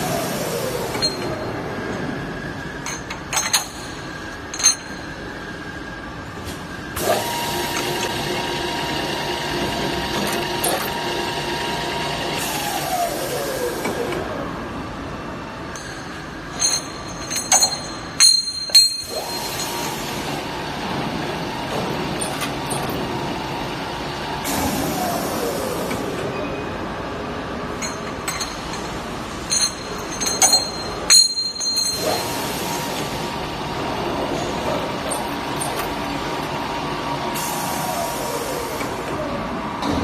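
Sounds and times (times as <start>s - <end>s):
machine mechanical hum: 0.0s - 40.0s
metal pipes clinking: 0.9s - 2.0s, 2.8s - 5.3s, 15.7s - 20.3s, 21.7s - 23.1s, 27.8s - 33.1s, 34.4s - 36.6s.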